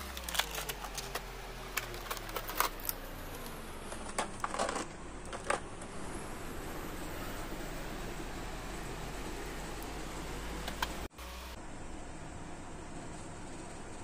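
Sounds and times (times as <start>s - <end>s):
plastic packaging clicking: 0.0s - 5.6s.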